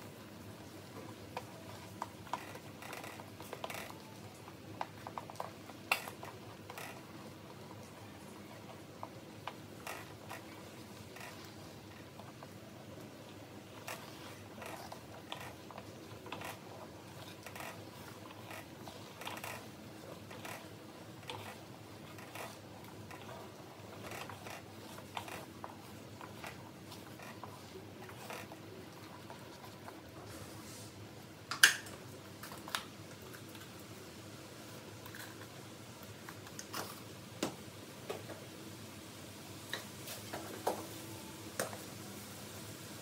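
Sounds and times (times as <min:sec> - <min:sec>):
liquid simmering hiss: 0:00.0 - 0:43.0
wooden spatula scraping wok: 0:00.7 - 0:31.0.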